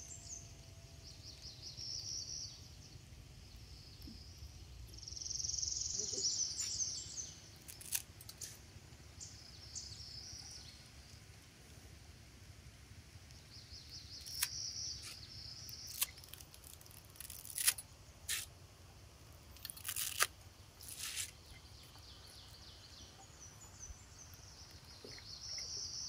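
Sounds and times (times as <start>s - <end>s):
dry noodles snapping: 7.6s - 8.4s, 14.2s - 18.5s, 19.5s - 21.3s.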